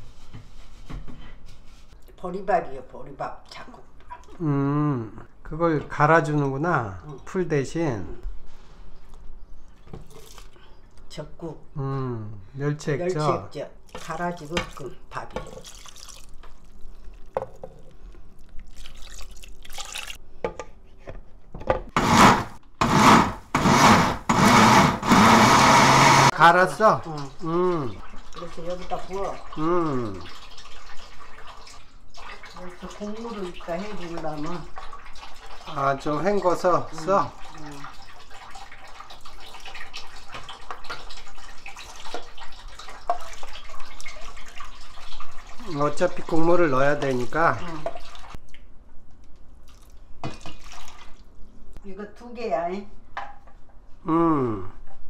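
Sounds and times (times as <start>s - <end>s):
water pouring through strainer: 15.6s - 17.4s, 18.6s - 20.2s, 26.5s - 48.4s, 49.7s - 51.2s
blender motor pulsing: 22.0s - 26.3s.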